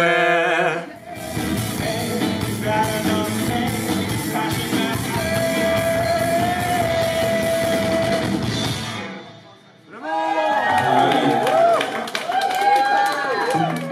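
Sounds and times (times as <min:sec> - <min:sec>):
rock song with male singer: 0:01.0 - 0:09.0.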